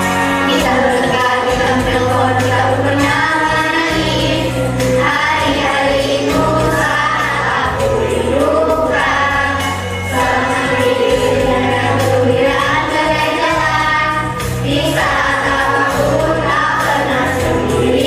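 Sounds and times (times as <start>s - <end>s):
backing track with bass notes: 0.0s - 18.0s
children singing: 0.0s - 18.0s.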